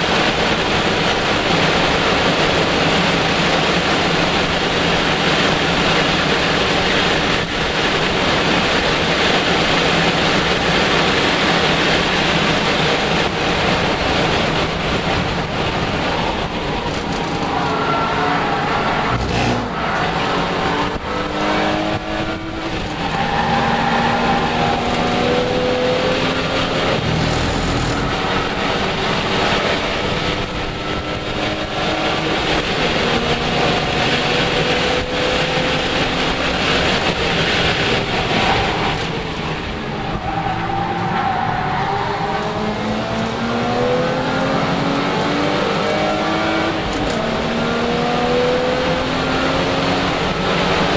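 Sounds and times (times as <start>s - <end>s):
race car engine revving: 0.0s - 50.9s
wind and road noise: 0.0s - 50.9s.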